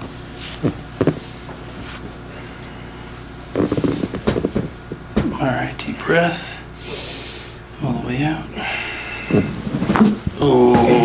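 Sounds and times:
padded table creaking and rustling: 0.0 - 2.2, 3.1 - 5.4, 9.3 - 11.0.

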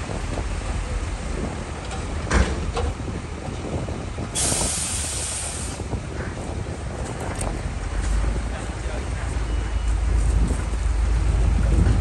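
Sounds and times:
heavy engine rumbling: 0.0 - 12.0
compressed air hissing: 4.4 - 5.8.

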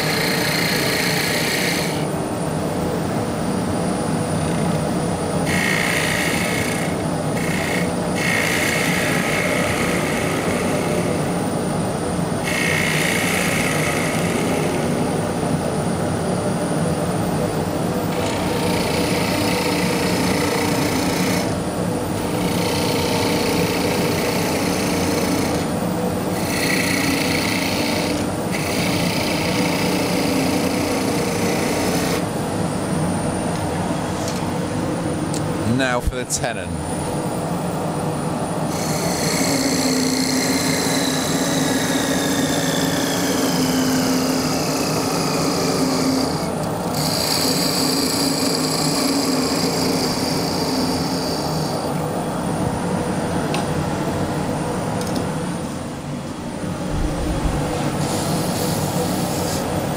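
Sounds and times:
wood lathe humming: 0.0 - 2.1, 5.4 - 11.3, 12.4 - 15.0, 18.1 - 32.3, 38.7 - 51.9, 56.9 - 59.9
chisel rasping on wood: 44.2 - 46.4.

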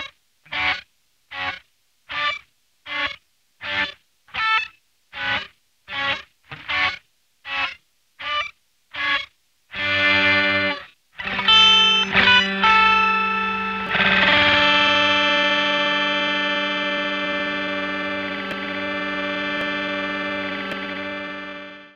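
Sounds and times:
distorted electric guitar chords: 0.0 - 2.3, 9.0 - 21.9.

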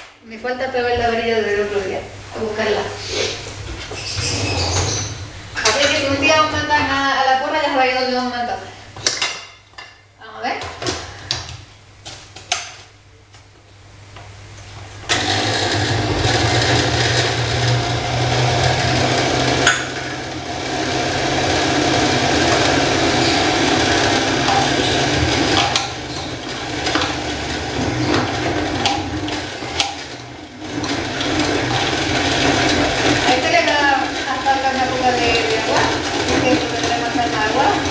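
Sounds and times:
blender running: 15.1 - 37.9.

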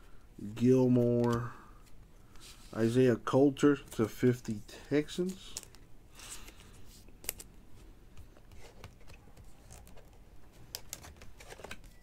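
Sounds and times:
cards sliding and rustling: 5.3 - 12.0
cards clicking: 6.4 - 7.5.

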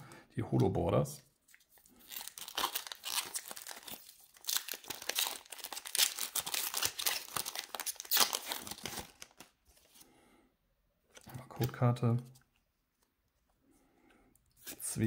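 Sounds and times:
foil wrapper crinkling and tearing: 1.6 - 9.5.

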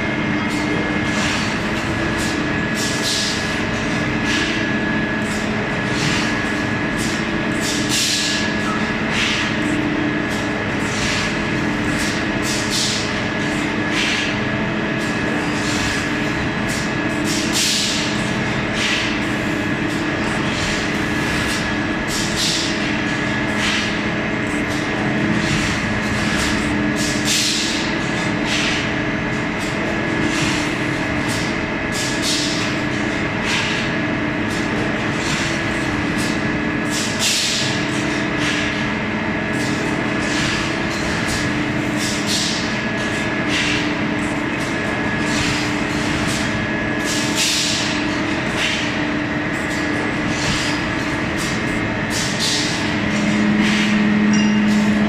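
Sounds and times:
machine hum: 38.9 - 55.0.

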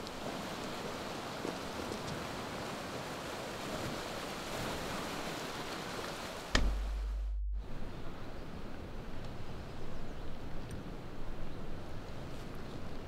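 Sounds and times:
wind: 0.0 - 13.0
sudden hit: 6.6 - 8.0
deep steady low hum: 6.6 - 10.0.

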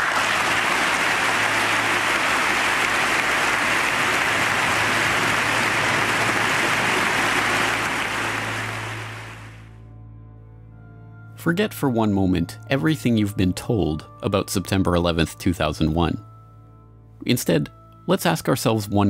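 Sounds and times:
large audience applauding: 0.0 - 9.7.

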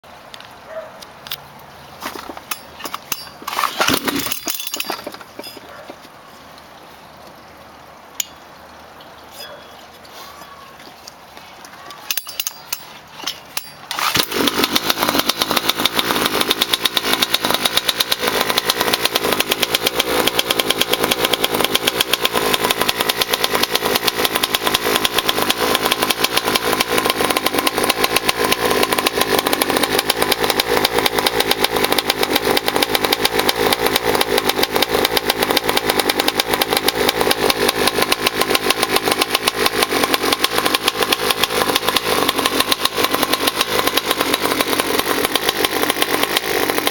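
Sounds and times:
small two-stroke engine running: 2.0 - 6.0, 12.1 - 46.9.

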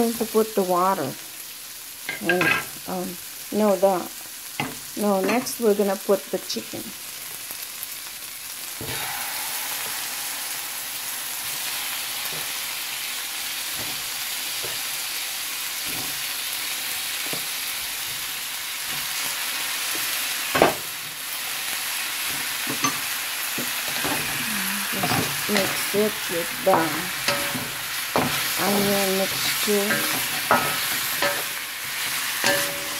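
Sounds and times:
chicken sizzling in hot oil: 0.0 - 32.9.

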